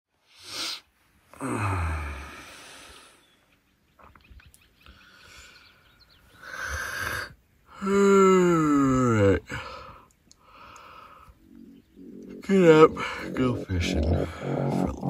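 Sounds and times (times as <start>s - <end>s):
man groaning: 1.4s - 2.4s, 7.8s - 9.6s
man breathing heavily: 1.4s - 3.2s, 9.4s - 13.4s, 14.2s - 14.8s.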